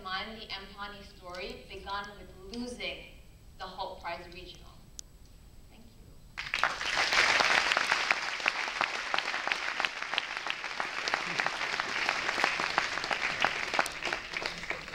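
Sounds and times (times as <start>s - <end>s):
audience applause: 6.4s - 14.9s.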